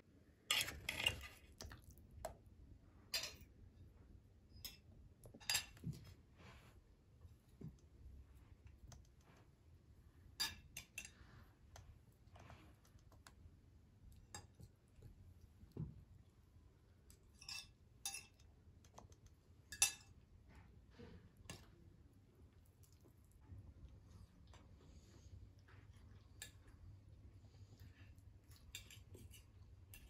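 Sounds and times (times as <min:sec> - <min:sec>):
cutlery clinking on plates: 0:03.1 - 0:03.5, 0:05.4 - 0:05.8, 0:17.3 - 0:18.5, 0:19.7 - 0:20.2.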